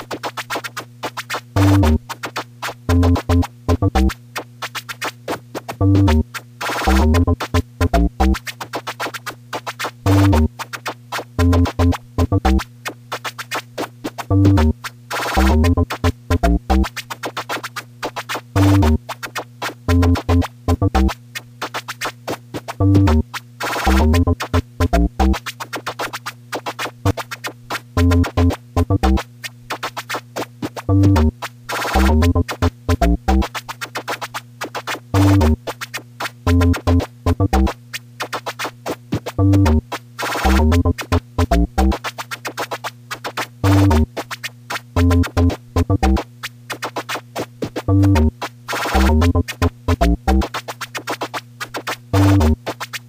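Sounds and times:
turntable scratching: 0:00.0 - 0:53.0
drum machine kicks: 0:01.6 - 0:02.1, 0:02.9 - 0:04.2, 0:05.7 - 0:08.4, 0:10.0 - 0:10.5, 0:11.4 - 0:12.7, 0:14.3 - 0:17.0, 0:18.6 - 0:19.0, 0:19.9 - 0:21.2, 0:22.8 - 0:25.4, 0:28.0 - 0:29.3, 0:30.8 - 0:33.5, 0:35.1 - 0:35.6, 0:36.5 - 0:37.8, 0:39.2 - 0:42.0, 0:43.6 - 0:44.2, 0:44.9 - 0:46.2, 0:47.6 - 0:50.5, 0:52.1 - 0:52.6.

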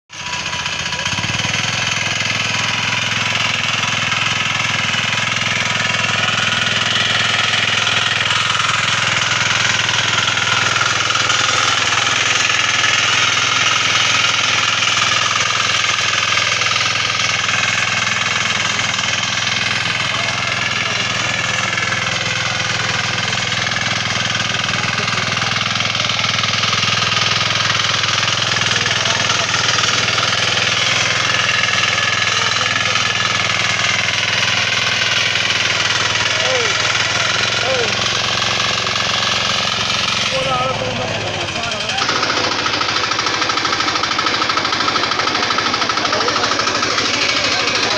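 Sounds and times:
diesel tiller engine running: 0:00.1 - 0:47.9
tines churning soil: 0:00.1 - 0:47.9.

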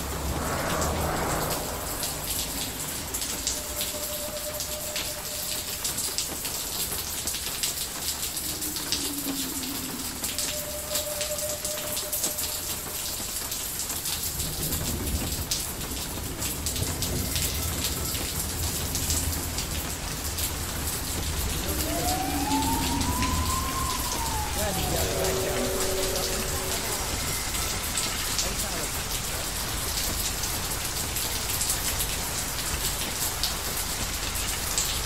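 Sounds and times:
steady rain falling: 0:00.0 - 0:35.0
low rumble: 0:08.0 - 0:13.0, 0:14.6 - 0:30.5
faint held tone: 0:08.1 - 0:13.5, 0:17.0 - 0:29.2.

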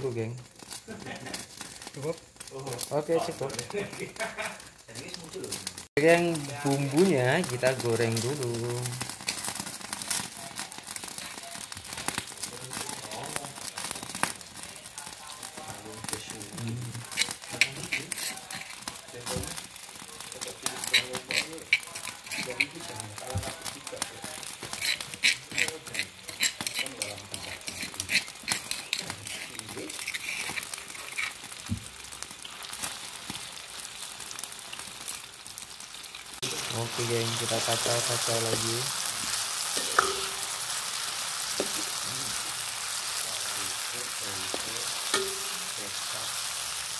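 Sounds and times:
chillies sizzling in hot oil: 0:00.0 - 0:46.9.

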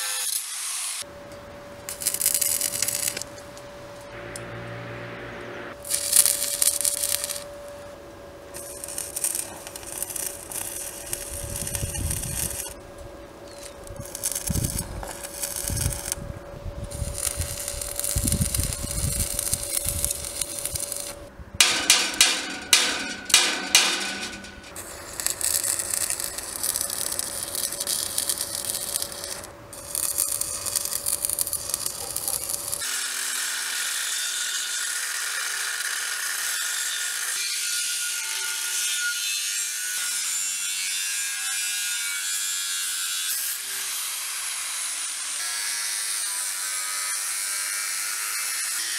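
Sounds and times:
arc welding crackling: 0:01.9 - 0:04.8, 0:05.7 - 0:07.5, 0:08.5 - 0:12.9, 0:13.5 - 0:33.0
angle grinder cutting steel: 0:17.0 - 0:48.9.

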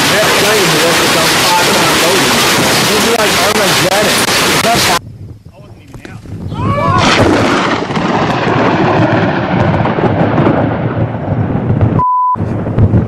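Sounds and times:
thunderclap rumbling: 0:00.0 - 0:13.0
steady beep tone: 0:12.0 - 0:12.4.

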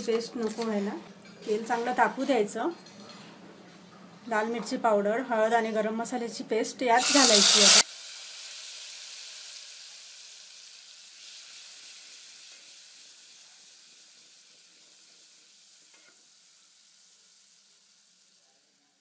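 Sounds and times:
spice paste sizzling in hot oil: 0:07.0 - 0:19.0.

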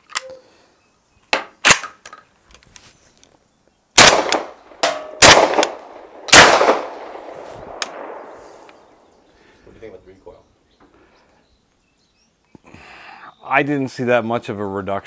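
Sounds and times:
gun handling clacks: 0:01.3 - 0:03.4
suppressed gunshots: 0:04.0 - 0:08.9.

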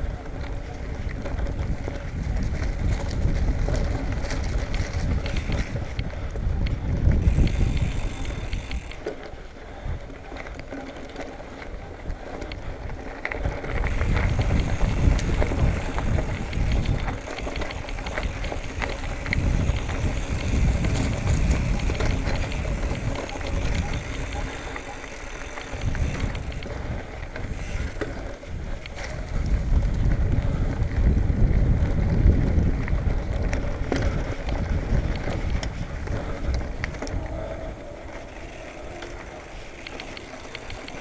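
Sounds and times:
wind on the microphone: 0:00.0 - 0:09.0, 0:11.7 - 0:41.0
bike clicks and rattles: 0:00.0 - 0:41.0
tyres rumbling on dirt trail: 0:00.0 - 0:41.0.

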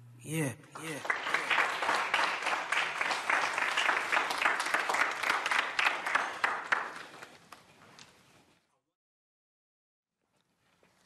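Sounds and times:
audience applauding: 0:00.7 - 0:07.6.

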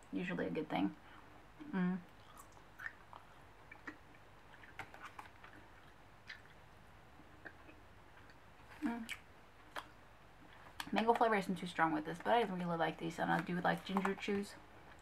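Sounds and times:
person chewing with mouth clicks: 0:01.6 - 0:06.6, 0:07.3 - 0:10.9.

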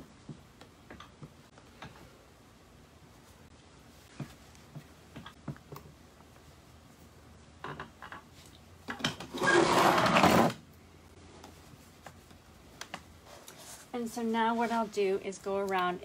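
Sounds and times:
chair legs scraping concrete: 0:09.3 - 0:10.6
fabric rustling: 0:11.2 - 0:15.3.

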